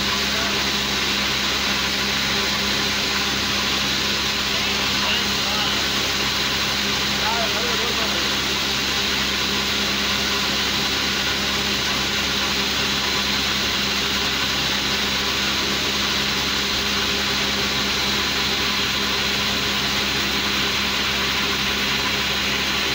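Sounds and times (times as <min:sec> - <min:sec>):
high whine: 0:00.0 - 0:09.3
machinery motor drone: 0:00.0 - 0:22.9.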